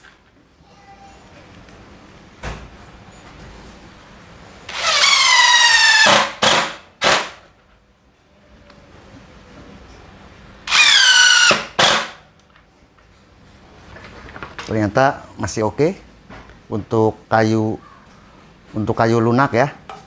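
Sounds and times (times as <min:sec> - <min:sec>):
impact driver driving screws: 0:04.7 - 0:07.4, 0:10.7 - 0:12.2.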